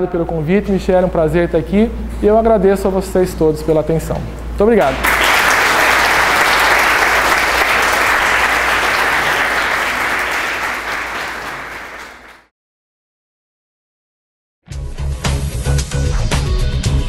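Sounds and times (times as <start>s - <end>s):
crowd applauding: 4.8s - 12.5s.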